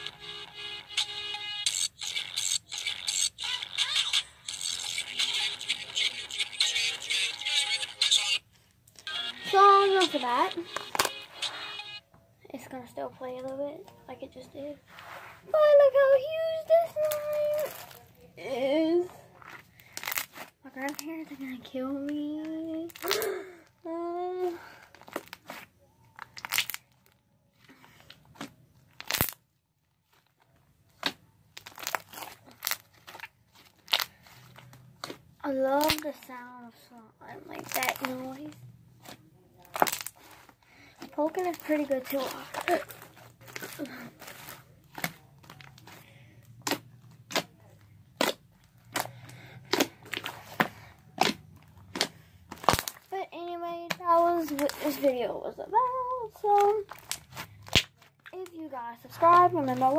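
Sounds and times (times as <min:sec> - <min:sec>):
slime popping and crackling: 0:26.2 - 0:27.0, 0:28.3 - 0:29.5, 0:31.0 - 0:36.4, 0:37.5 - 0:40.4, 0:41.0 - 0:53.1.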